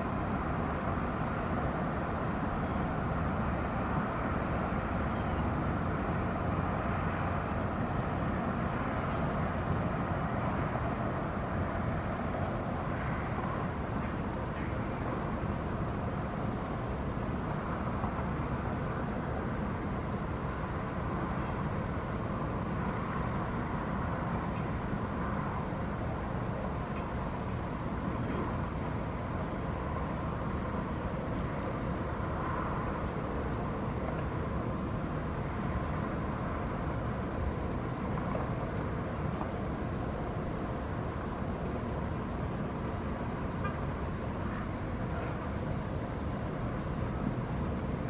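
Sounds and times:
distant city traffic: 0.0 - 48.0
construction site activity: 28.2 - 28.6.

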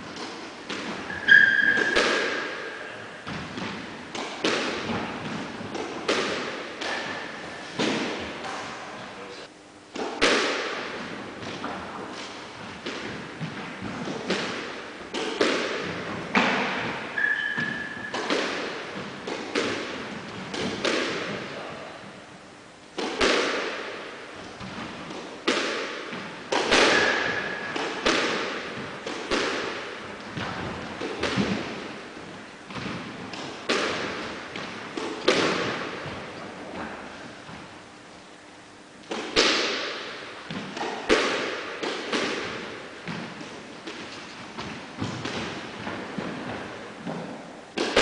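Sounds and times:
squash ball cracks: 0.1 - 8.6, 9.9 - 21.5, 22.9 - 37.0, 39.0 - 48.0
high squeaks: 1.1 - 2.0, 17.2 - 18.2.

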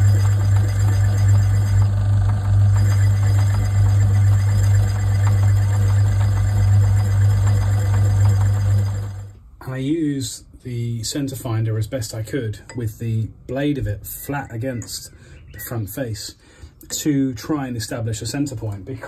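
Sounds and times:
rapid ticking of cutting tool: 0.0 - 9.2
lathe motor hum: 0.0 - 9.4.

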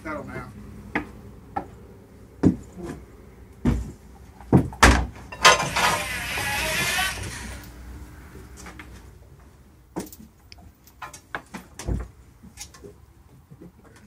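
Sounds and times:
footsteps and knocks on boat hull: 2.4 - 3.0, 3.6 - 5.2
rasping scrape: 5.5 - 7.7.

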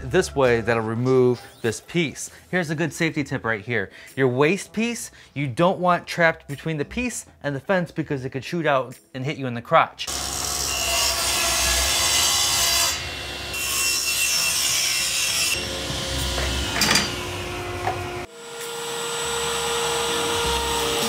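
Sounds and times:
table saw cutting wood: 10.1 - 21.0.

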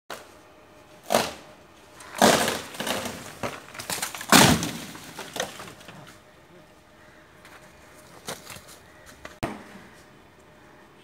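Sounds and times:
splitting wood and snapping twigs: 1.0 - 1.4, 2.0 - 6.2
branch crashing through foliage: 2.0 - 6.0
tree branch cracking: 2.0 - 6.1.

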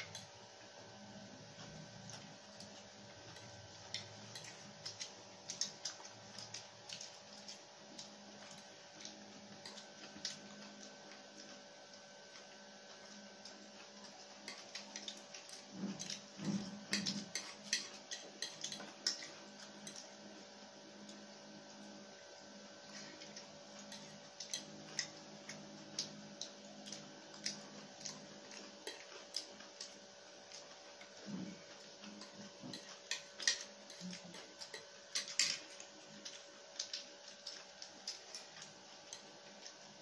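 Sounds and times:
faint steady hum: 0.0 - 40.0
chewing and mouth smacks: 2.0 - 20.2, 22.8 - 39.9
plastic forks clicking on plates: 14.4 - 20.0, 32.2 - 39.7.

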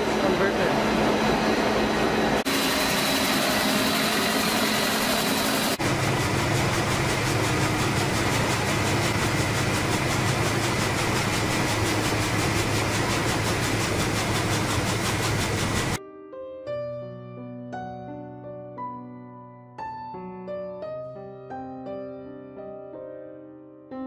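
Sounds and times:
rice mill machinery humming: 0.0 - 16.0.

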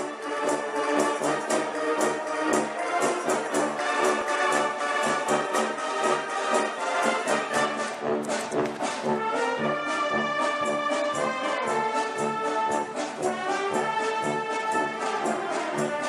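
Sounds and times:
orchestral music with brass: 0.0 - 16.0.

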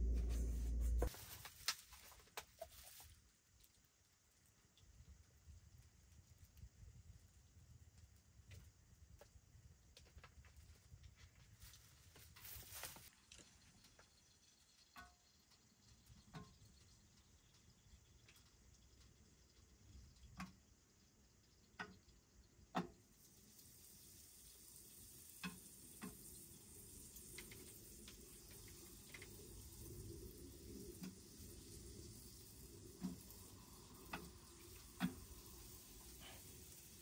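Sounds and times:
food sizzling on stove: 23.1 - 37.0.

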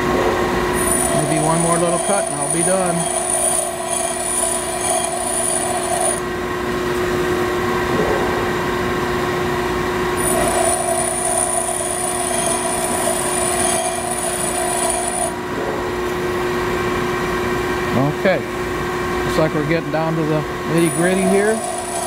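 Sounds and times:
grinder motor running: 0.0 - 22.0
grinding wheel grinding tool bit: 0.7 - 6.3, 10.2 - 15.4, 20.7 - 22.0.

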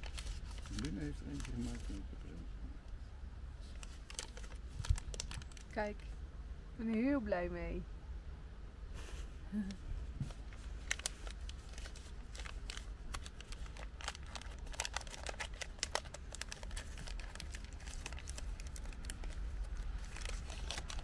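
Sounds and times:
wrapping paper crinkling: 0.0 - 2.0, 3.6 - 5.8, 10.3 - 21.0
low steady rumble: 0.0 - 21.0.

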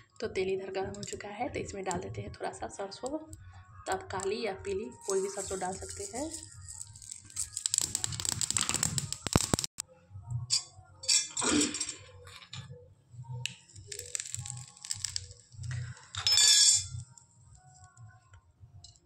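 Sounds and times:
background music with low beat: 0.0 - 19.0
mustard seeds crackling in hot oil: 5.0 - 9.8, 13.5 - 17.1.

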